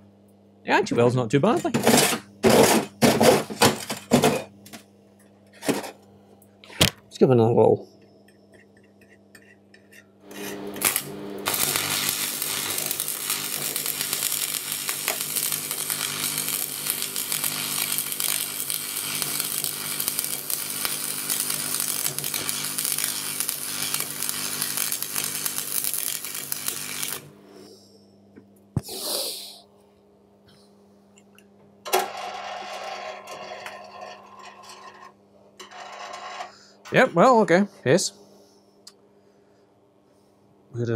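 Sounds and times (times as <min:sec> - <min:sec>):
welder transformer buzz: 0:10.2 - 0:27.4
welding arc crackling and hissing: 0:10.3 - 0:27.4.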